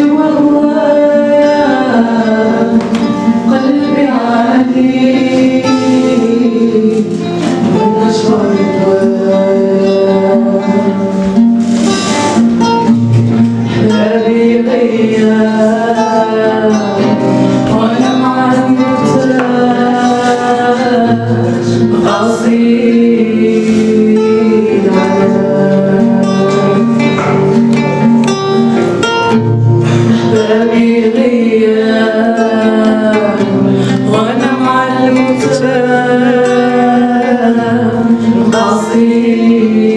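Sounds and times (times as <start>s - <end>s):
woman singing: 0.0s - 11.4s, 13.6s - 27.2s, 30.1s - 39.9s
acoustic guitar: 0.0s - 39.9s.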